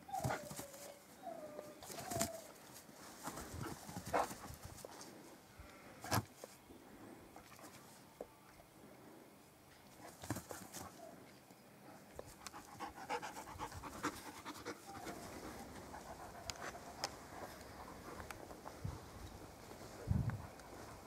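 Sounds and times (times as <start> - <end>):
dog panting: 3.2 - 4.9, 12.3 - 21.0.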